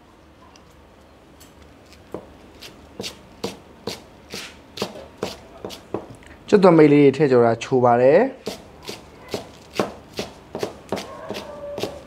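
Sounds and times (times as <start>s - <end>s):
knife slicing leek on cutting board: 2.6s - 6.0s, 8.4s - 12.0s.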